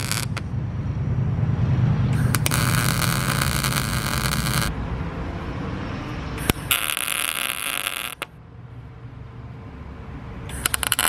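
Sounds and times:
welding arc crackling and hissing: 0.0 - 0.4, 2.2 - 4.7, 6.4 - 8.3, 10.5 - 11.0.

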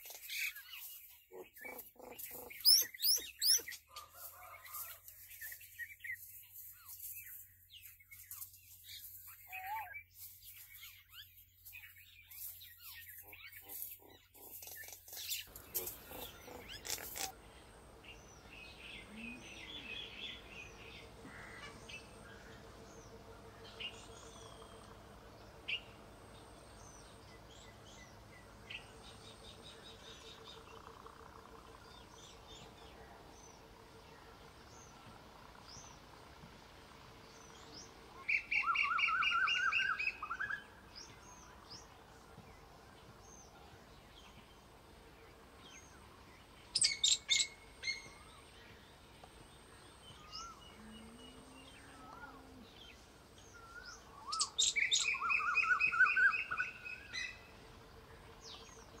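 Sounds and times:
songbirds singing and chirping: 0.0 - 59.0
faint steady hum: 15.5 - 59.0.

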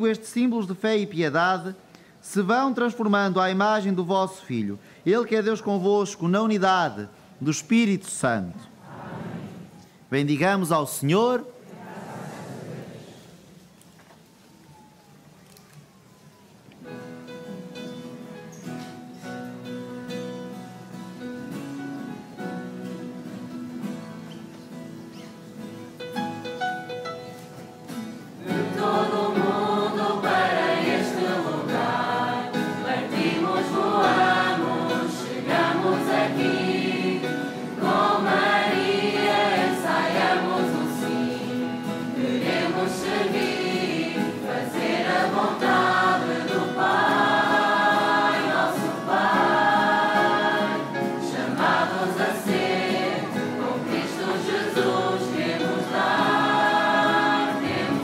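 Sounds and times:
choir singing a hymn: 8.8 - 9.8, 11.6 - 13.4, 28.4 - 58.0.

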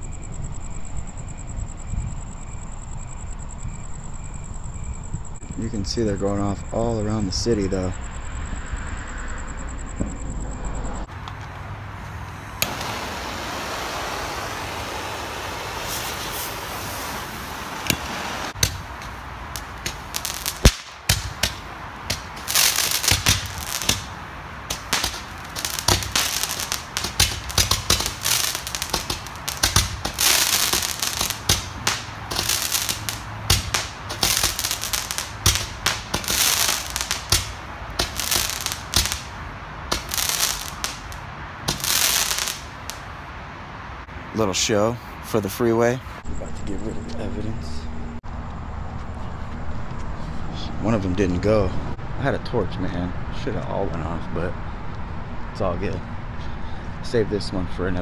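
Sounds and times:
blowtorch hissing: 12.2 - 39.2
roman candles popping and crackling: 17.8 - 43.0.

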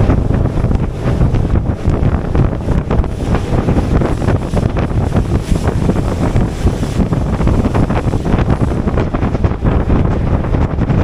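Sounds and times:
water rushing along boat hull: 0.0 - 11.0
wind across microphone: 0.0 - 11.0.

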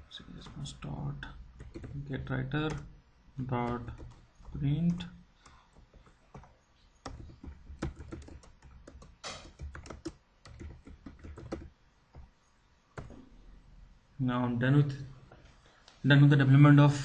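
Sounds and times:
keyboard typing clicks: 1.6 - 2.0, 3.6 - 12.3.

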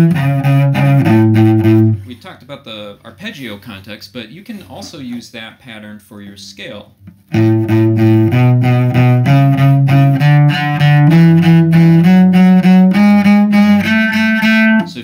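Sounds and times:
cello playing scale: 0.0 - 2.0, 7.1 - 15.0.

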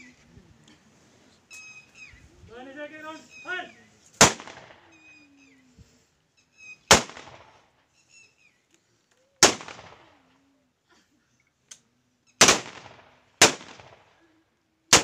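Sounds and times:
rifle volleys with echo: 4.2 - 4.9, 6.9 - 7.6, 12.4 - 14.1.

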